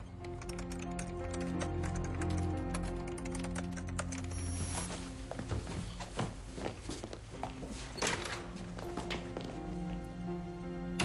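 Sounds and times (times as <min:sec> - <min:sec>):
background music with low notes: 0:00.0 - 0:11.0
keyboard typing clicks: 0:00.2 - 0:04.6.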